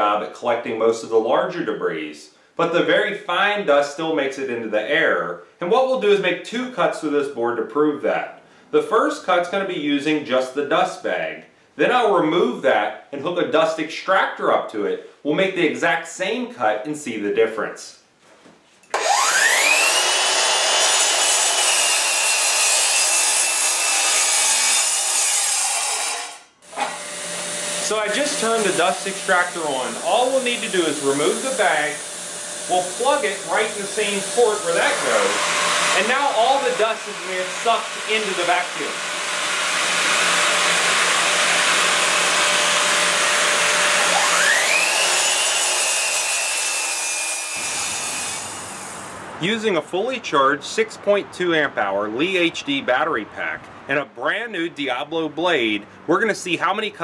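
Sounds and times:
miter saw cutting wood: 0:18.9 - 0:49.2.

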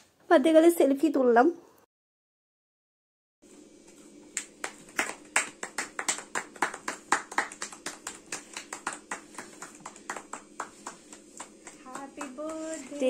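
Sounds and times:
people clapping: 0:04.3 - 0:13.0.

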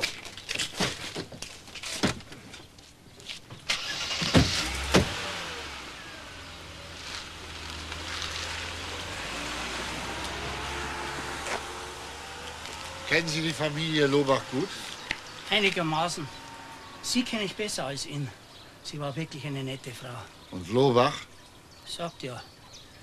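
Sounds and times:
car engine running: 0:03.8 - 0:18.7
car doors slamming: 0:04.2 - 0:05.2
footsteps on paving: 0:07.0 - 0:08.7, 0:10.2 - 0:11.8, 0:12.4 - 0:13.1.

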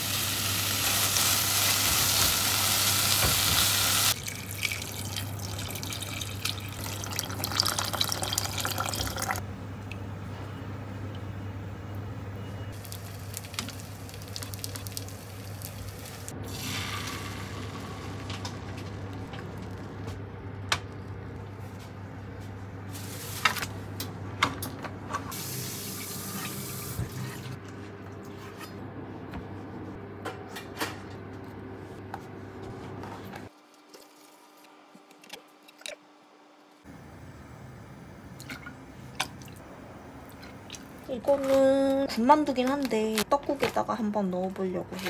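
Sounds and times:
kitchen tap running: 0:01.4 - 0:09.4.

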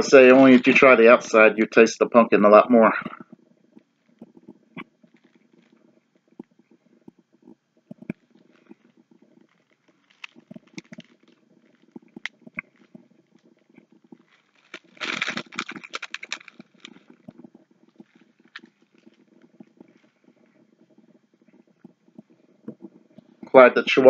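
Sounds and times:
chewing: 0:03.1 - 0:22.9
foil wrapper crinkling: 0:08.2 - 0:20.2.

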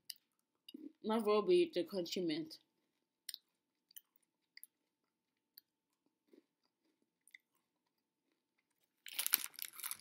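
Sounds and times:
chewing crunchy candy: 0:03.3 - 0:10.0.

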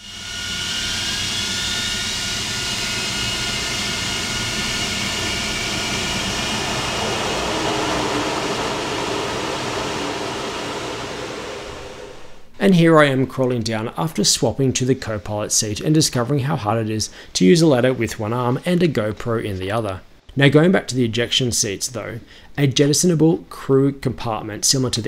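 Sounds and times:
jet engine roar: 0:00.0 - 0:12.6
high whining tones: 0:00.0 - 0:12.8.

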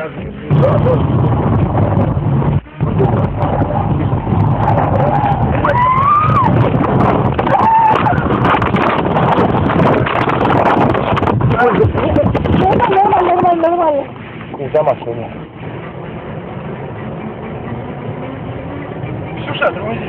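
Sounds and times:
car road and engine rumble: 0:00.0 - 0:20.0
high-pitched squeal: 0:00.5 - 0:09.4.

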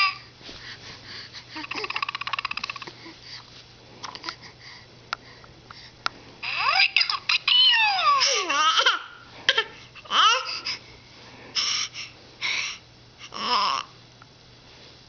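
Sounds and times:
baby laughing: 0:01.6 - 0:02.9.

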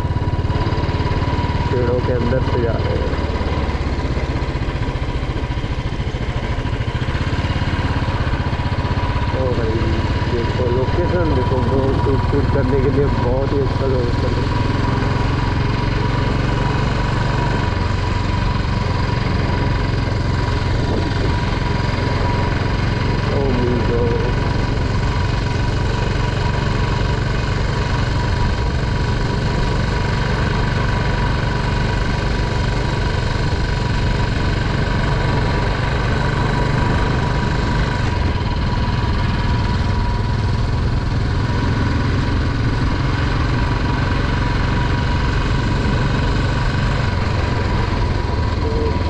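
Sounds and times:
motorcycle engine running: 0:00.0 - 0:49.0
wind and road noise: 0:00.0 - 0:49.0.

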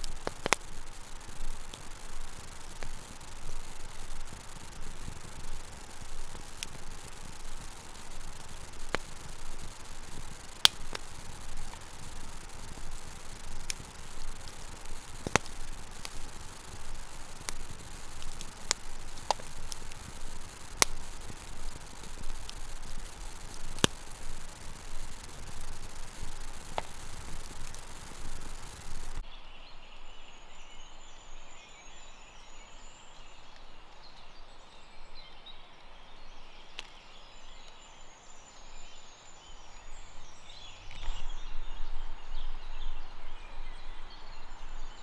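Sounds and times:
fire popping and crackling: 0:00.0 - 0:29.2
campfire hiss: 0:00.0 - 0:29.3, 0:30.4 - 0:45.0.

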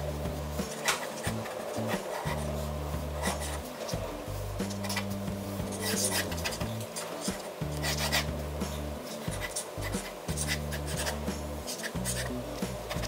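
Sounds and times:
background music with low notes: 0:00.0 - 0:13.0
pen scratching on paper: 0:03.2 - 0:03.6, 0:04.6 - 0:05.1, 0:05.7 - 0:08.3, 0:09.0 - 0:12.3.

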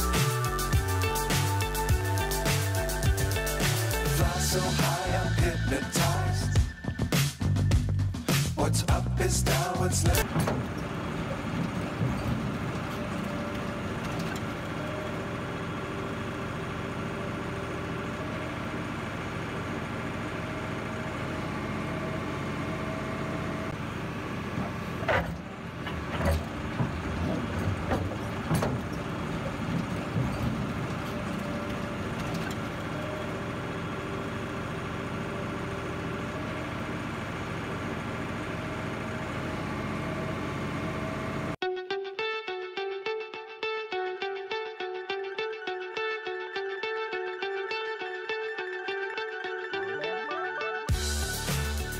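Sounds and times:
heavy vehicle engine running: 0:00.0 - 0:41.6, 0:50.9 - 0:51.9
knocks and clatters: 0:24.5 - 0:32.9.

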